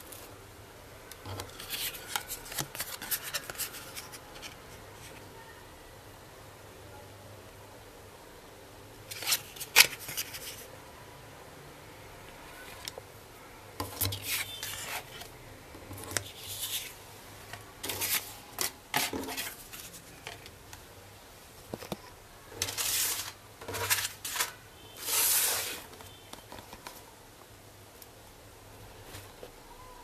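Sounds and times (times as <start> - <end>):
cardboard packaging rustling: 21.8 - 27.1.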